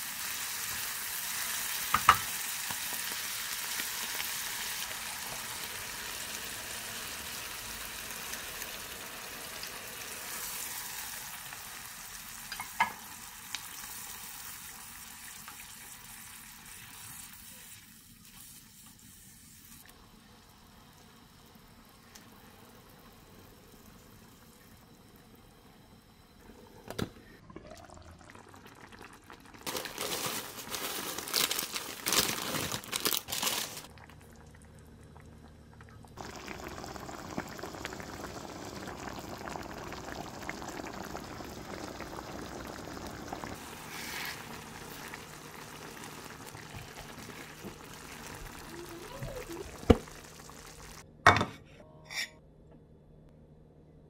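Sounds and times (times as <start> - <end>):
sauce simmering and bubbling: 19.9 - 29.7, 33.8 - 51.0.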